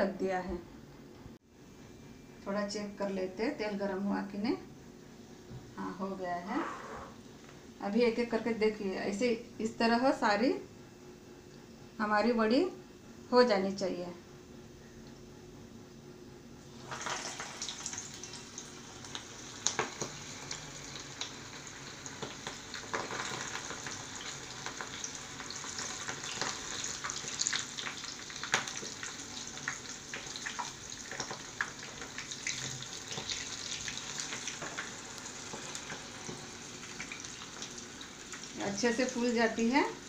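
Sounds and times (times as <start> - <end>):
deep-frying sizzle with pops: 16.7 - 40.0.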